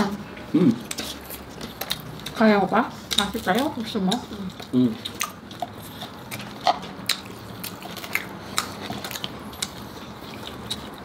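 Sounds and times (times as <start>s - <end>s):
crunchy chewing: 0.7s - 2.4s, 3.0s - 11.0s.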